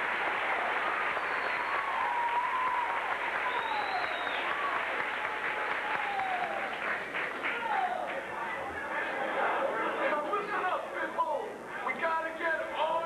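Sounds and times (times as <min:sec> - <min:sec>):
audience applauding: 0:00.0 - 0:08.6
drawn-out cheers: 0:00.4 - 0:06.8.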